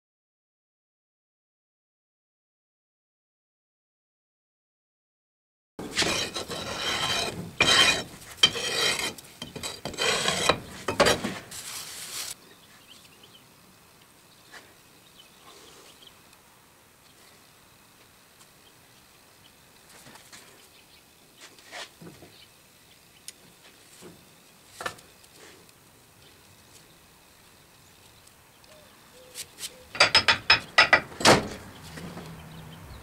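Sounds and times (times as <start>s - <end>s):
sharp metallic knocks and clicks: 29.9s - 32.3s.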